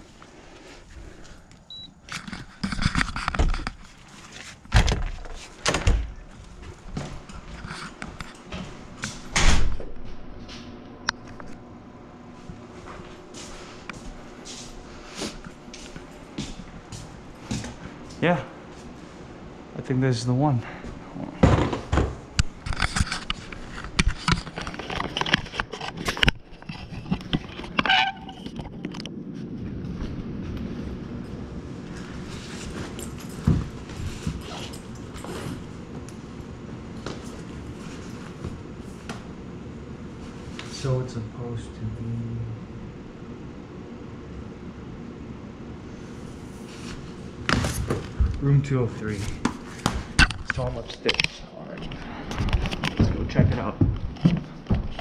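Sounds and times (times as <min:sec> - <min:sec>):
card reader beep: 0:01.7 - 0:01.9
heavy door thumps: 0:04.7 - 0:06.2, 0:09.3 - 0:09.9
steady low rumble: 0:28.6 - 0:34.2.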